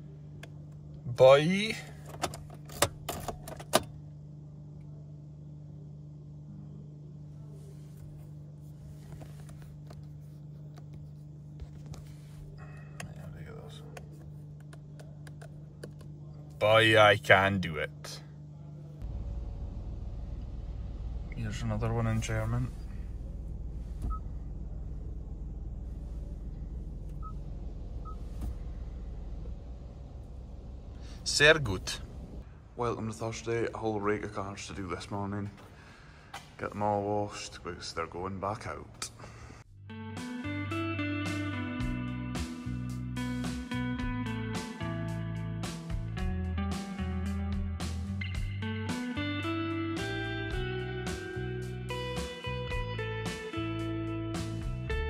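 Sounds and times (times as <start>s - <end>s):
car low hum: 18.7s - 39.8s.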